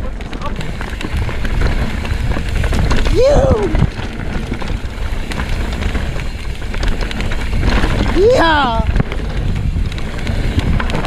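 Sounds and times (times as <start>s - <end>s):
bike tyre rumble: 0.0s - 11.0s
wind rush on microphone: 0.0s - 11.0s
person whooping: 3.1s - 3.9s.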